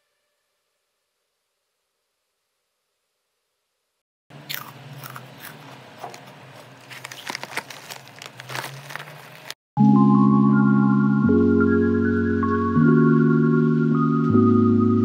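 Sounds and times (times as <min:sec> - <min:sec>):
chips crunching: 0:04.4 - 0:09.6
chip bag rustling: 0:04.5 - 0:09.6.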